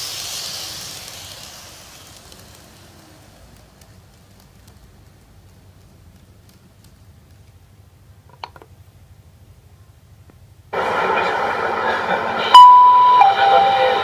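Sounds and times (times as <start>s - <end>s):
electric train running: 0.0s - 7.0s, 10.8s - 14.0s
steady whine: 10.7s - 14.0s
loud steady tone: 10.8s - 14.0s.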